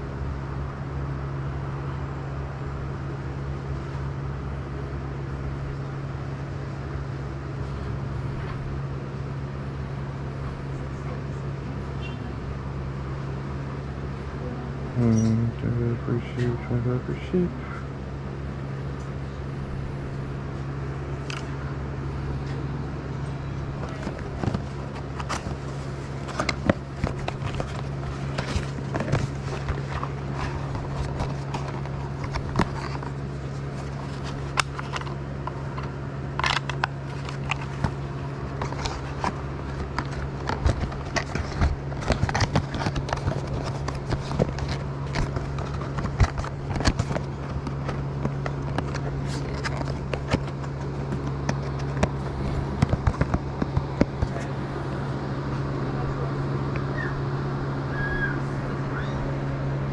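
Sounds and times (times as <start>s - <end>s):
steady low hum: 0.0s - 59.9s
cardboard and plastic handling: 23.7s - 54.6s.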